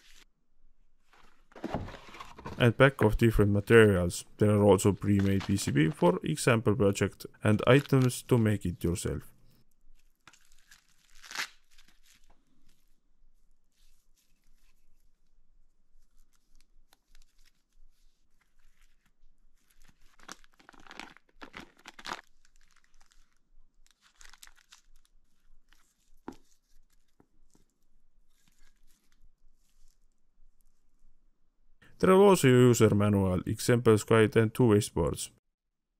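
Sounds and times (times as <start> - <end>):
plastic wrapping crinkling: 4.8 - 6.2, 9.9 - 12.9, 16.2 - 30.9.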